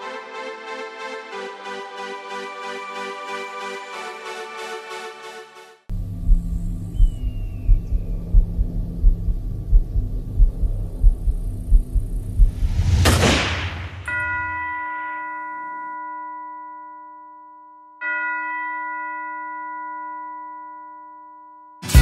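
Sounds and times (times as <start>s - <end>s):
noisy whoosh: 12.2s - 14.1s
deep bell-like chime: 14.0s - 22.0s.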